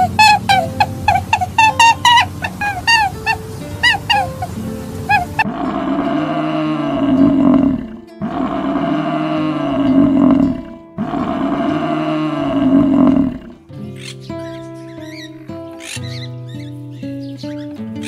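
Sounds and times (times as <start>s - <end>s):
big cat roaring: 4.0s - 13.6s.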